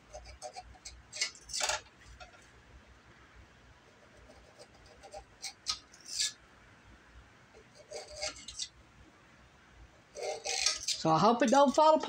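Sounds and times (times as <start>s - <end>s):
knife scraping and clicking: 0.0s - 1.8s, 4.2s - 6.4s, 7.6s - 8.8s, 10.1s - 11.0s.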